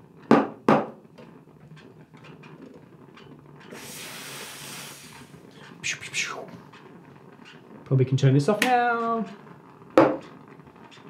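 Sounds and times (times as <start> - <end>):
steam wand hissing: 3.7 - 6.5.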